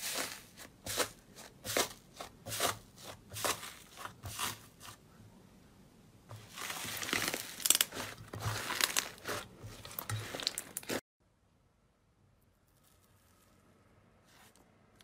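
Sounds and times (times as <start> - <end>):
crusted slime crackling: 6.4 - 11.0.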